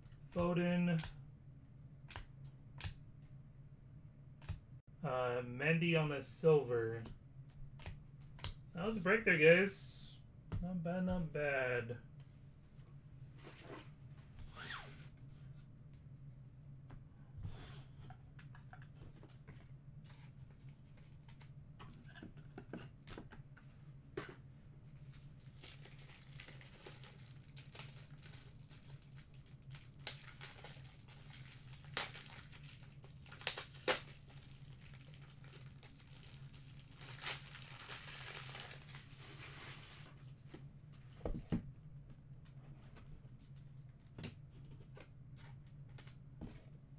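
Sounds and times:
low steady hum: 0.0s - 46.9s
plastic packaging crinkling: 25.4s - 39.3s.

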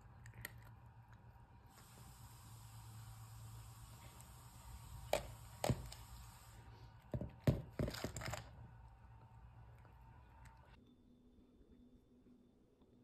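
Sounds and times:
plastic ball clattering on hard floor: 7.1s - 8.6s.

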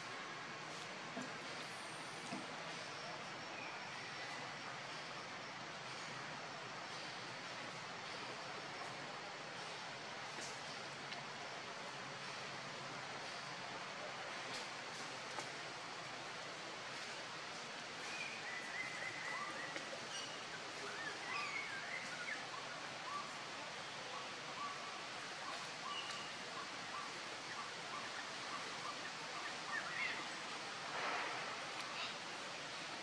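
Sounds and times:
faint hiss: 0.0s - 33.0s.

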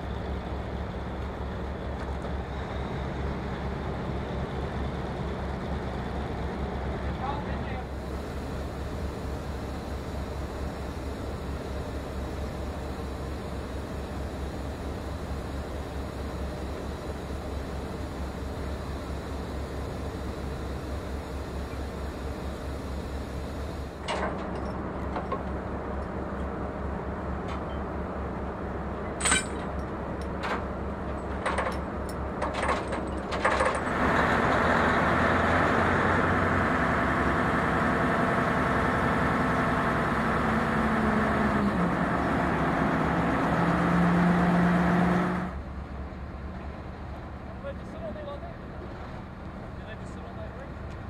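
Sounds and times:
metal clanks: 29.1s - 33.9s
crane diesel engine revving: 33.7s - 47.0s.

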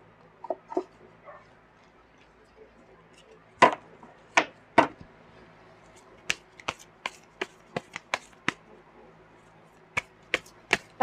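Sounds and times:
cards being shuffled by hand: 5.9s - 8.6s, 9.9s - 11.0s
sharp card clacks: 6.2s - 8.6s, 10.0s - 11.0s.

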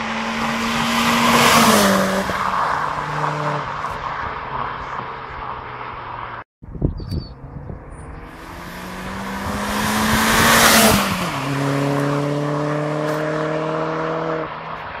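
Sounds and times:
car engine driving past: 7.4s - 15.0s.

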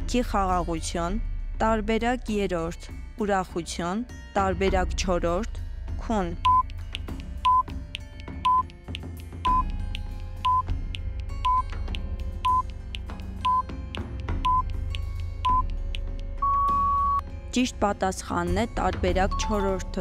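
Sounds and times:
soft background music: 0.0s - 20.0s
countdown timer beeping: 6.4s - 8.7s, 9.4s - 12.7s, 13.3s - 15.8s, 16.4s - 17.2s
longer higher beep: 13.4s - 13.6s, 16.4s - 17.2s.

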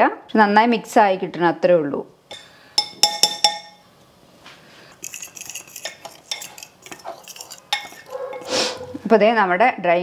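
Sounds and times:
utensil clinking against bowl: 2.3s - 3.8s, 4.9s - 8.9s.

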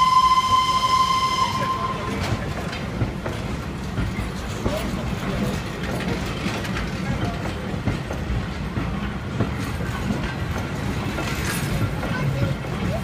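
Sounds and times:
clacks of train wheels: 0.0s - 13.0s
train wheels rumbling on rails: 0.0s - 13.0s.

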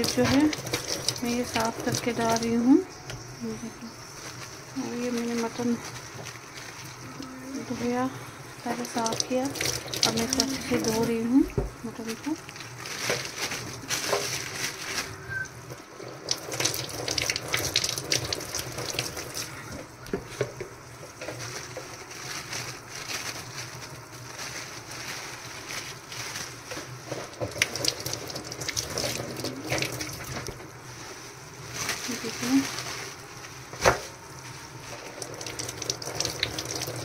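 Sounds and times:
tap water splashing into sink: 27.2s - 30.6s, 35.0s - 37.0s.

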